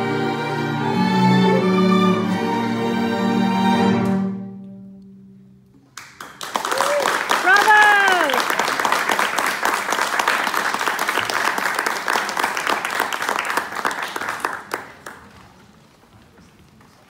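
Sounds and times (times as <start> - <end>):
audience applause: 6.0 - 15.6.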